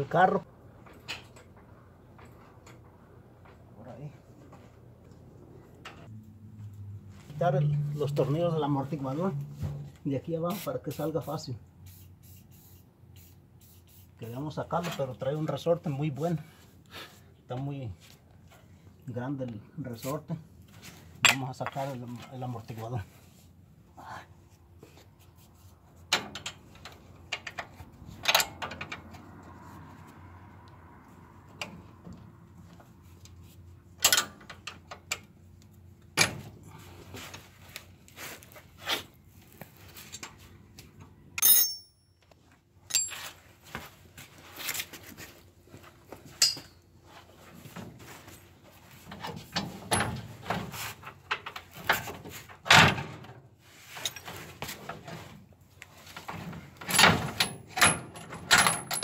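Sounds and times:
ringing metal clink: 41.4s - 42.3s, 42.9s - 43.3s, 46.4s - 46.8s
wrench clicking and clanking on metal: 46.4s - 46.7s.

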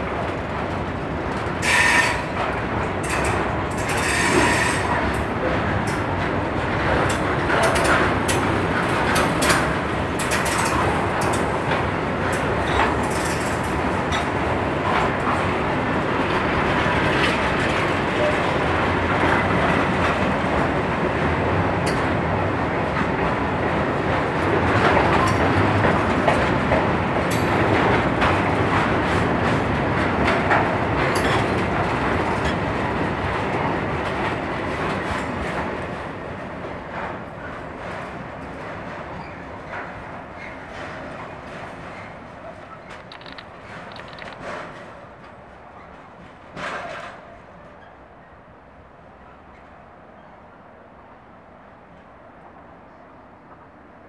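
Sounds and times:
train wheels rumbling on rails: 0.0s - 50.4s
wagons clicking and clattering: 5.9s - 11.6s, 41.5s - 44.9s.

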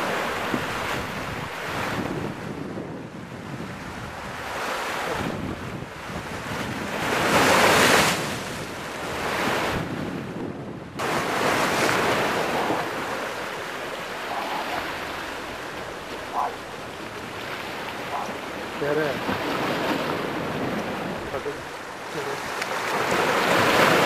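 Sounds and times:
sea waves: 0.0s - 24.0s
wind buffeting microphone: 0.0s - 24.0s.

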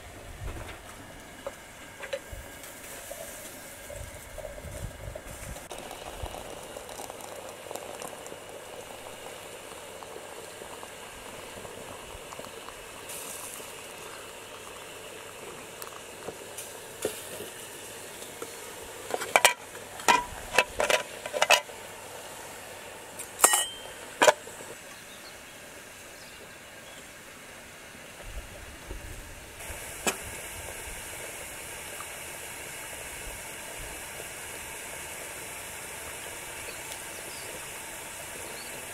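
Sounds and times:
water pouring into metal teapot: 2.8s - 21.7s.

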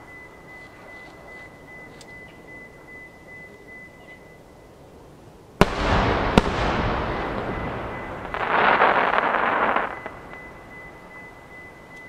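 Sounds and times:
firework crackling: 5.6s - 11.1s
firework shells booming: 5.6s - 11.1s.

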